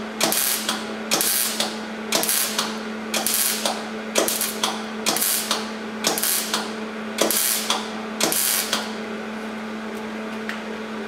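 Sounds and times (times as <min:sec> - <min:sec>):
steady welder hum: 0:00.0 - 0:10.3
arc welding bursts: 0:00.2 - 0:09.0.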